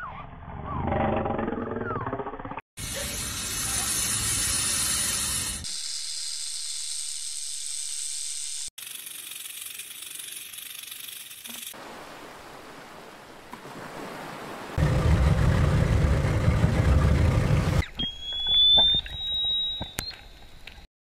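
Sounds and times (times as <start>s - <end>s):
snake hissing: 2.8s - 5.8s.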